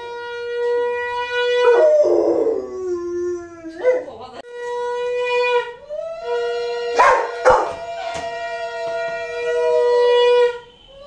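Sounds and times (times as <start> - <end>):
conch shell blowing: 0.0 - 3.6, 4.5 - 11.0.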